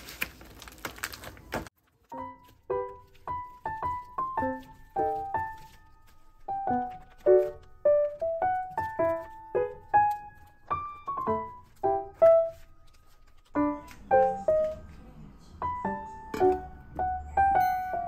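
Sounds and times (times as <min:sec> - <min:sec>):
piano music: 0:01.9 - 0:18.0.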